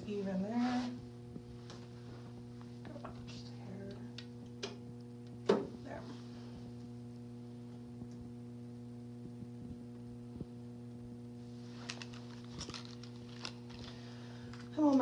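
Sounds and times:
electrical hum: 0.0s - 15.0s.

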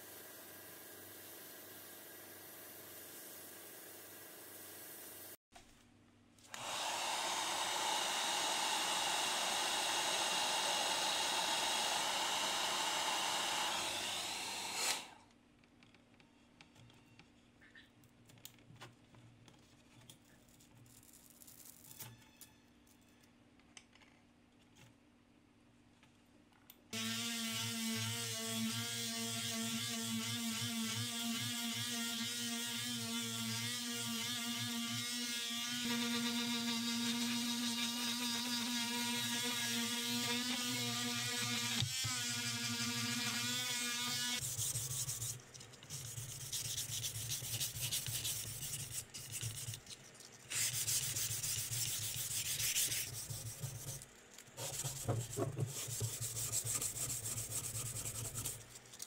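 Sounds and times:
oscillating multi-tool whine: 6.5s - 15.2s
sandpaper rasping on plastic: 44.3s - 54.0s, 54.6s - 58.8s.

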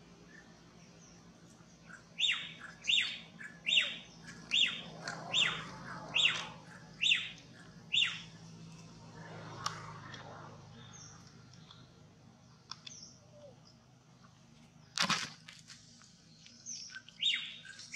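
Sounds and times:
high squawking animal calls: 1.9s - 8.4s.

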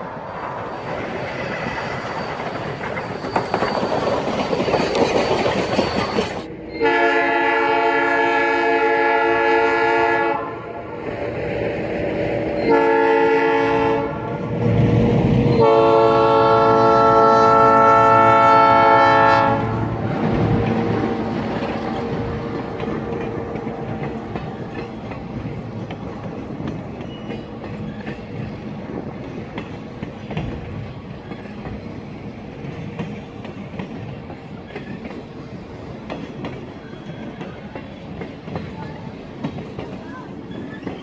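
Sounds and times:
train rumbling past: 0.0s - 41.0s
locomotive air horn blasts: 6.6s - 10.8s, 12.3s - 14.4s, 15.6s - 19.9s.

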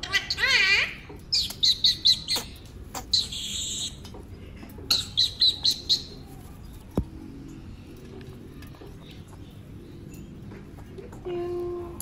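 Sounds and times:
parakeet calling: 0.0s - 4.0s, 4.9s - 6.2s.

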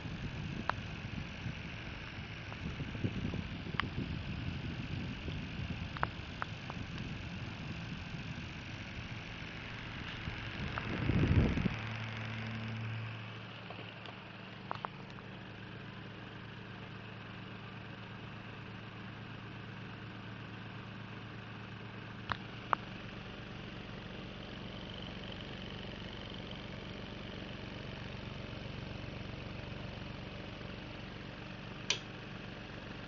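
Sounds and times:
motor whirring hum: 0.0s - 16.9s
sharp clicks: 31.9s - 32.1s.

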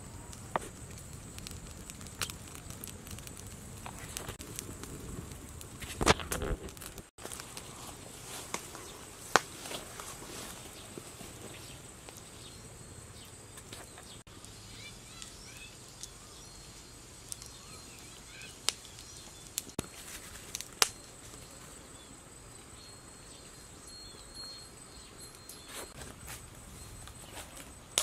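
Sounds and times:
sharp cracks: 0.0s - 7.7s, 20.5s - 21.0s
bird chirps: 10.7s - 19.6s.

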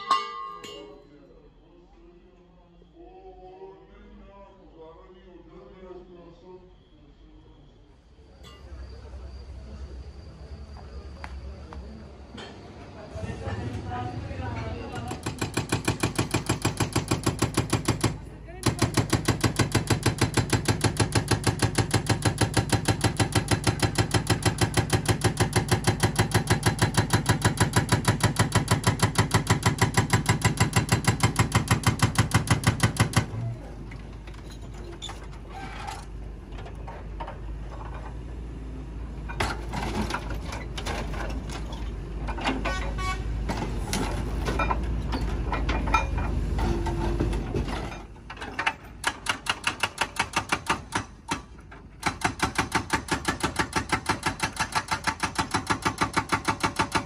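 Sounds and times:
hydraulic breaker hammer pounding steel: 15.0s - 33.5s, 45.6s - 57.0s.

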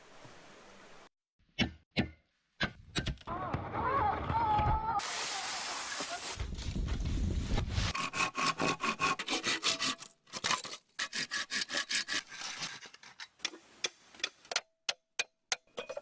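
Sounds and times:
hand saw cutting bamboo: 7.9s - 13.6s.

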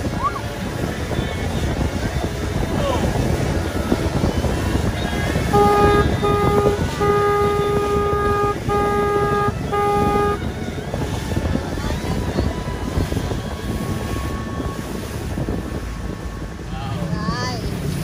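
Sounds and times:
boat running: 0.0s - 18.0s
boat horn blasts: 4.8s - 11.6s.

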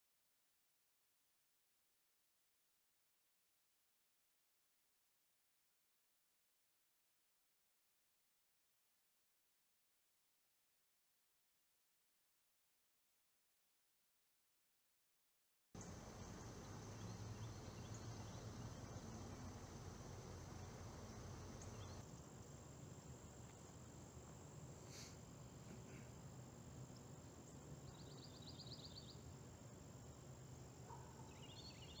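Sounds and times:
bird chirps: 15.8s - 22.0s, 27.8s - 29.2s, 30.9s - 32.0s
steady high-pitched hiss: 15.8s - 32.0s.

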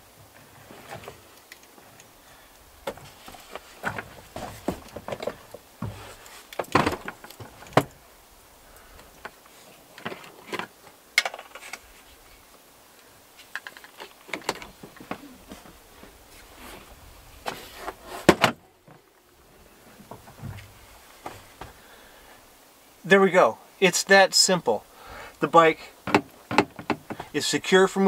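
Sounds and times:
bike and hooks knocking and rattling: 2.8s - 8.0s, 26.0s - 27.4s.

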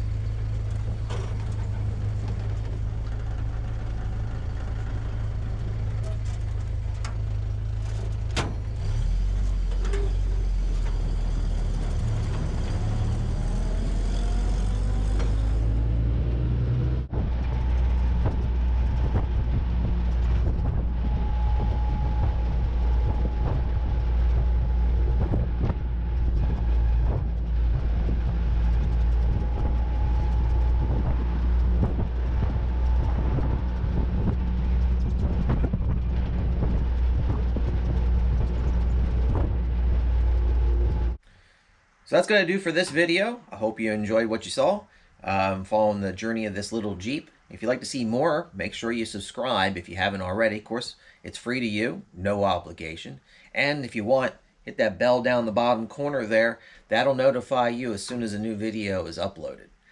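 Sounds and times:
car engine running: 0.0s - 41.2s
road and wind noise: 0.0s - 50.4s.

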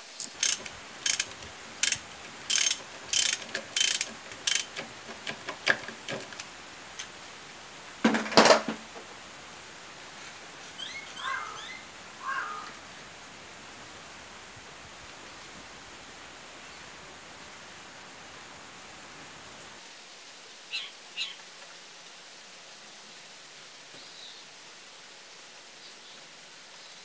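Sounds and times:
ratchet wrench clicking: 0.2s - 6.4s.

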